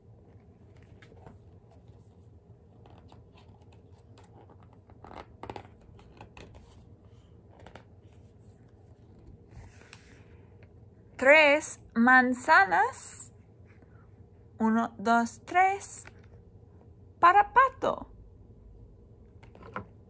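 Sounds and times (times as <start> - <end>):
book pages turning: 0.2 - 10.8, 19.3 - 20.0.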